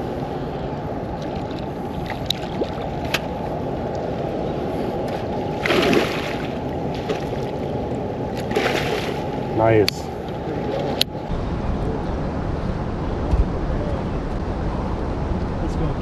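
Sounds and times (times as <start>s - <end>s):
fish splashing at surface: 5.6s - 7.4s, 8.4s - 9.2s.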